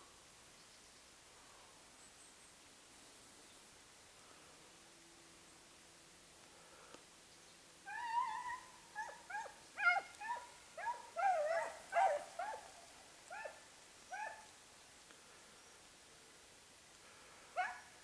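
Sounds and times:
hounds yelping: 0:07.9 - 0:14.4, 0:17.6 - 0:17.9.

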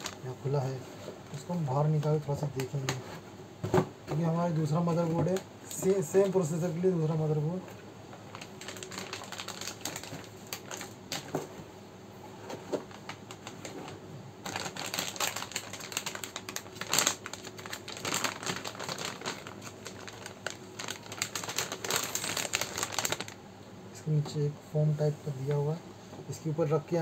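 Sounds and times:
plastic bag crinkling: 0:00.0 - 0:00.4, 0:08.1 - 0:11.5, 0:12.6 - 0:23.4.

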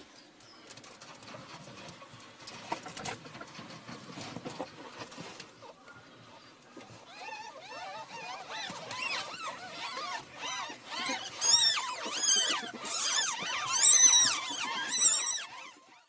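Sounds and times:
ferrets squeaking: 0:06.9 - 0:16.0.

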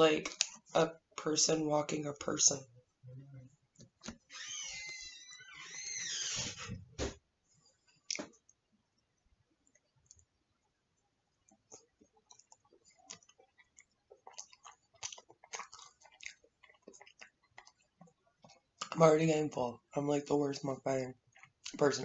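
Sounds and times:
close-up wet chewing: 0:09.6 - 0:10.4, 0:11.4 - 0:18.9, 0:21.2 - 0:21.8.

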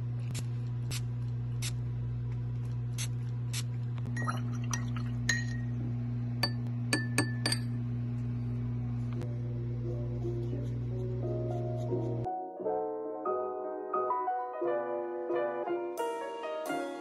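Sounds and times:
soft background music: 0:09.4 - 0:17.0.

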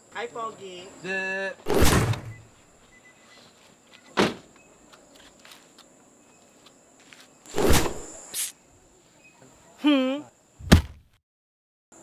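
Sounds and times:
heavy thump: 0:01.7 - 0:02.4, 0:10.6 - 0:11.1.

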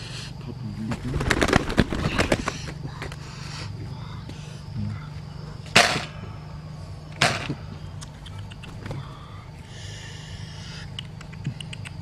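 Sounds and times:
pigeon flapping wings: 0:00.9 - 0:03.2.

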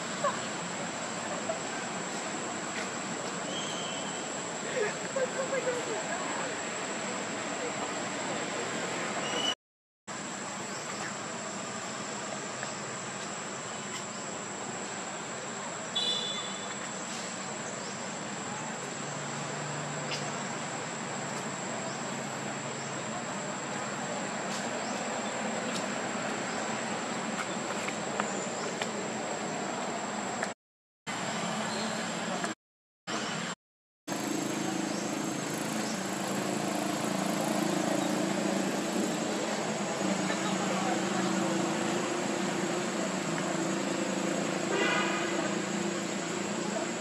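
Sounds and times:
background buzzing hiss: 0:10.1 - 0:30.5.

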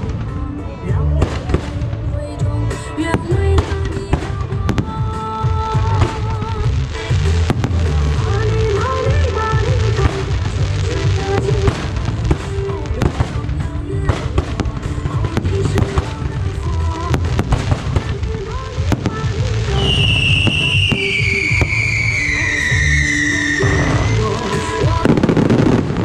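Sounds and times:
background music: 0:00.0 - 0:26.0
fireworks crackles and bangs: 0:00.0 - 0:26.0
high falling whistle: 0:19.8 - 0:24.3.

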